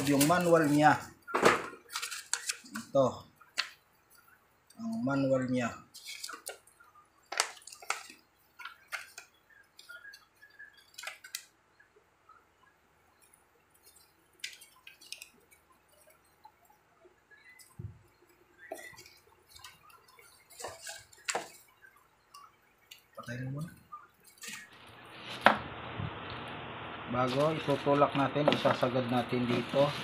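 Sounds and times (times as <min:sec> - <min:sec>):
paper rustling and pages flipping: 0:00.0 - 0:03.8, 0:05.9 - 0:11.5, 0:13.2 - 0:16.3, 0:18.6 - 0:21.9, 0:24.2 - 0:25.7.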